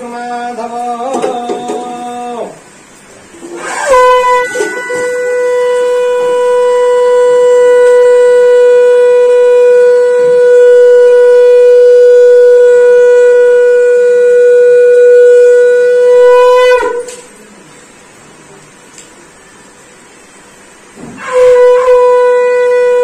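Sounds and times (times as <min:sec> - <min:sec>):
conch shell blown: 0:03.3 - 0:17.6, 0:21.0 - 0:23.0.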